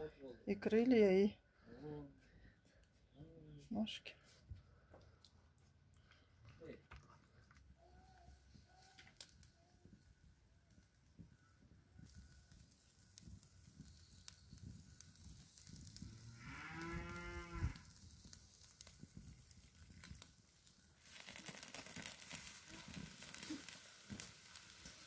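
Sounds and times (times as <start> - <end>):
chicken grilling over charcoal: 7.6 - 25.0
cow mooing: 16.4 - 17.8.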